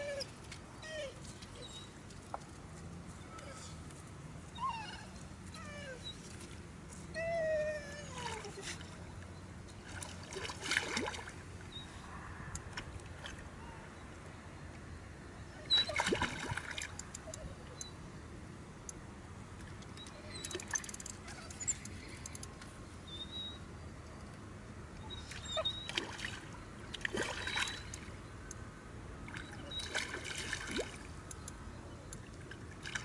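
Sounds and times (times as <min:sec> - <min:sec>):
fish splashing: 0:25.9 - 0:28.1, 0:29.3 - 0:31.1.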